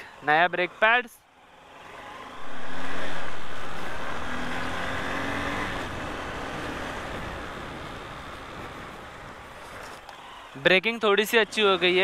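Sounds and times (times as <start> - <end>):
loud rushing noise: 2.0 - 6.5.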